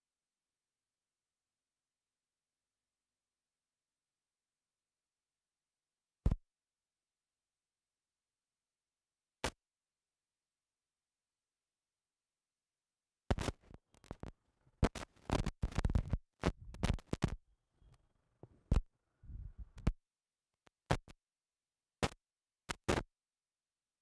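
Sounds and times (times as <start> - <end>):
clothing rubbing on microphone: 13.4 - 20.0.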